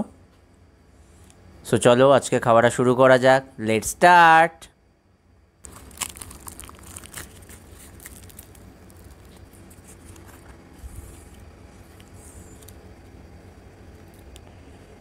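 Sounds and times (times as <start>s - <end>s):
low steady hum: 0.0s - 15.0s
fried bread tearing and crackling: 5.6s - 12.8s.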